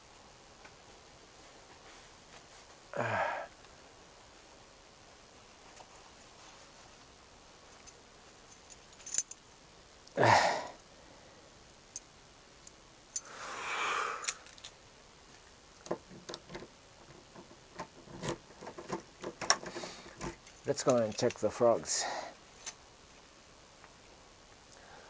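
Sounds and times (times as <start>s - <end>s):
small objects clicking and jangling: 7.8s - 9.4s, 14.2s - 14.8s, 18.1s - 21.5s.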